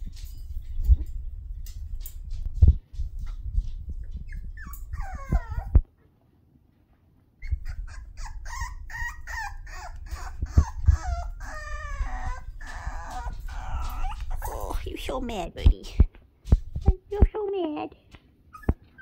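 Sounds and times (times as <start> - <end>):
puppy yapping and whining: 4.0 - 5.9, 7.4 - 14.6, 18.4 - 19.0.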